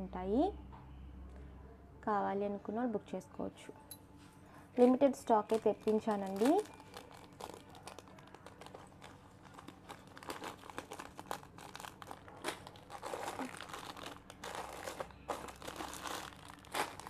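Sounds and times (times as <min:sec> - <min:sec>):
plastic pouches crinkling: 0:04.8 - 0:17.0.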